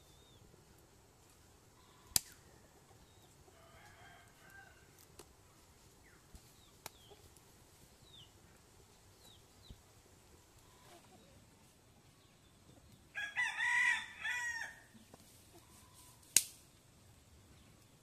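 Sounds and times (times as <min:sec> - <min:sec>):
faint rooster crowing: 0:01.8 - 0:05.0, 0:13.1 - 0:16.2.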